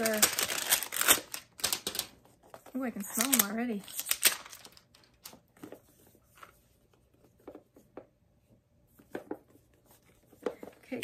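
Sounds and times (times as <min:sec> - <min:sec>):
packaging rustling: 0:00.0 - 0:05.8.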